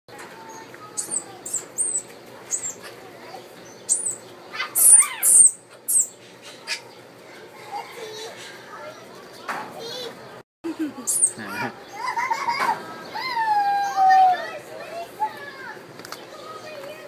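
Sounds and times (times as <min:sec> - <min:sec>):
monkey chirping: 0:01.0 - 0:03.0, 0:03.7 - 0:06.9, 0:10.7 - 0:12.2.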